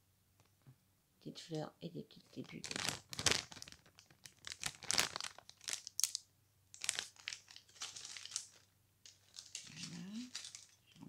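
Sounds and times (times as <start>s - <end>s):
plastic bag crinkling: 2.3s - 11.0s.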